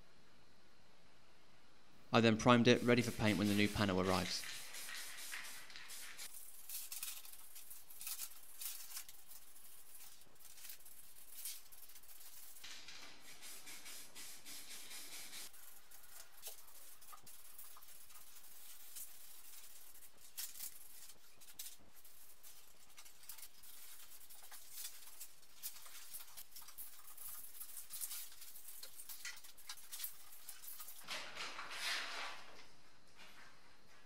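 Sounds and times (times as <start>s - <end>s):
aerosol spray can hissing: 2.8s - 6.4s, 12.5s - 15.5s.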